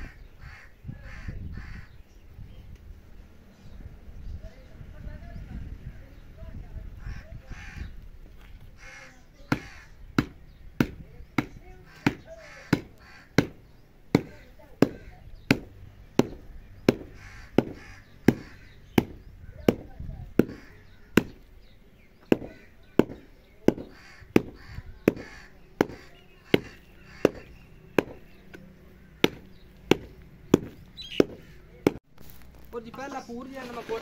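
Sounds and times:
stick pounding dry soil: 9.4s - 34.0s.

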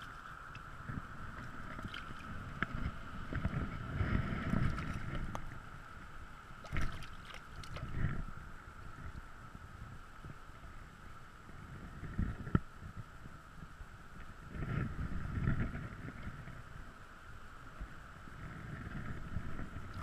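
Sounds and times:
river water sloshing and splashing: 0.0s - 5.6s, 6.5s - 8.2s.

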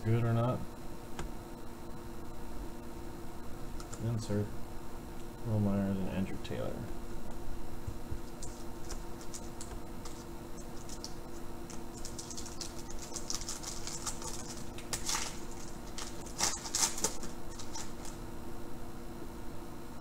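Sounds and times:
foil wrapper crinkling: 8.2s - 18.2s
foil pack tearing open: 11.7s - 18.2s.

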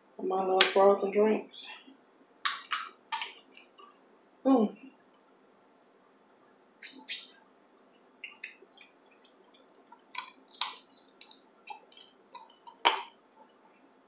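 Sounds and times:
wet chewing and smacking: 7.9s - 13.2s.

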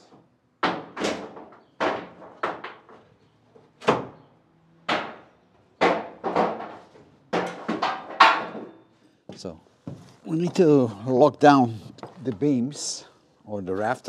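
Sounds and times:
wooden boards knocking on ceiling: 0.6s - 3.0s, 3.8s - 4.2s, 4.9s - 8.8s.

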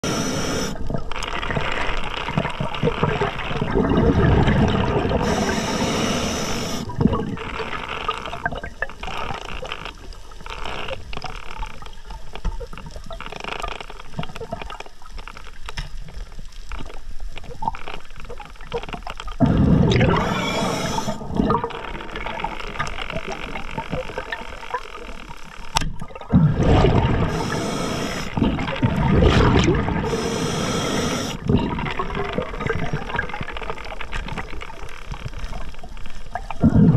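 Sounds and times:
regulator hissing inhales: 0.0s - 0.8s, 5.2s - 6.9s, 19.8s - 21.2s, 27.3s - 28.4s, 30.0s - 31.4s
underwater water noise: 0.0s - 36.9s
exhaled bubbles rushing: 0.6s - 9.1s, 19.4s - 24.4s, 26.0s - 34.7s, 36.4s - 36.9s.

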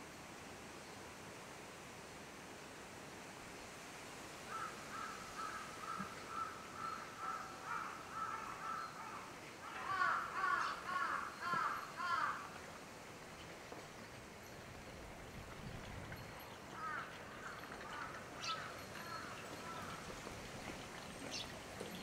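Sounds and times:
crows cawing: 4.5s - 12.6s, 16.8s - 20.1s.

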